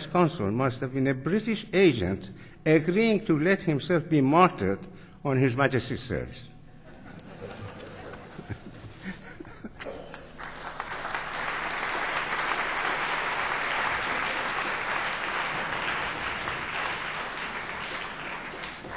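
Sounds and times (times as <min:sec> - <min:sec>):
audience applauding: 0:09.9 - 0:18.9.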